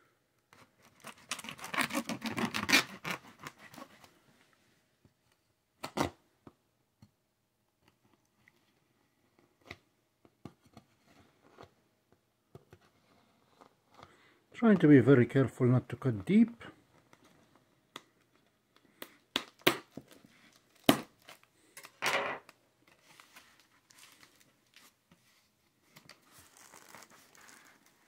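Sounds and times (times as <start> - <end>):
box cutter clicks and scrapes: 0.8 - 3.9
cardboard box tearing: 0.9 - 4.0.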